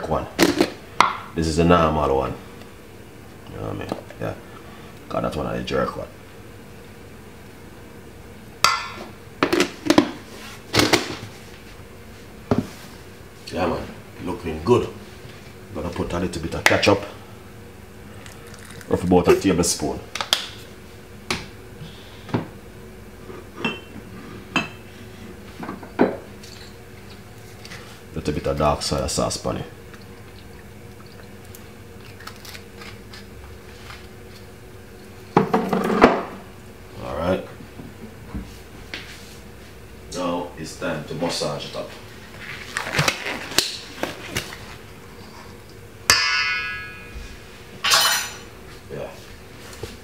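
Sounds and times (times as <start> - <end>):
metal spoon striking steel bowl: 46.1 - 47.1.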